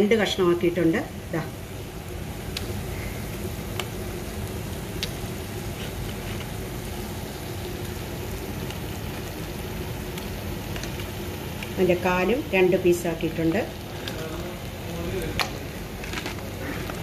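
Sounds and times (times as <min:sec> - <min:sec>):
food sizzling in a pan: 0:00.0 - 0:17.0
sharp popping in hot oil: 0:02.4 - 0:12.0, 0:15.2 - 0:17.0.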